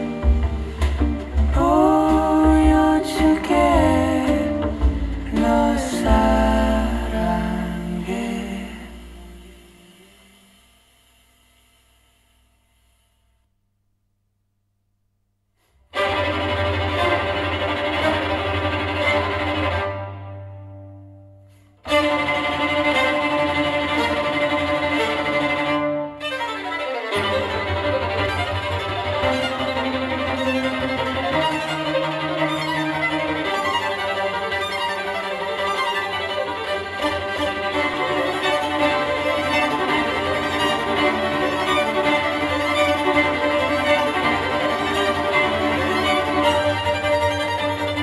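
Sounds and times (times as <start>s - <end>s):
violin-led string music: 0.0s - 10.4s, 15.9s - 48.0s.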